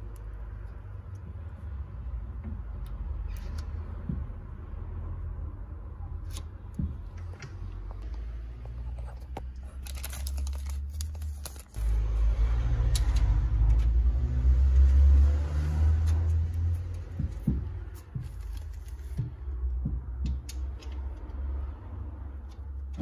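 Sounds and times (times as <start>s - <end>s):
plastic bag crinkling: 9.6s - 11.9s.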